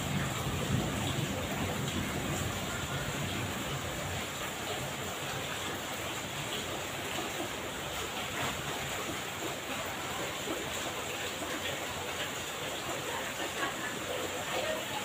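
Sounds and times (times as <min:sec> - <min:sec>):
heavy rain on paving and roofs: 0:00.0 - 0:15.0.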